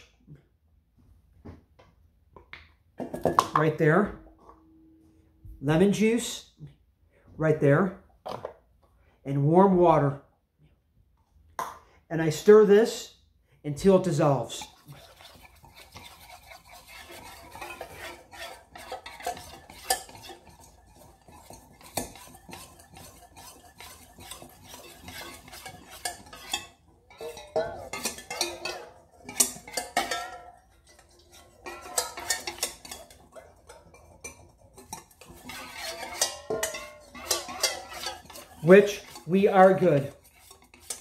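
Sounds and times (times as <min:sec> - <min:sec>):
utensil clinking in metal bowl: 0:13.8 - 0:41.0.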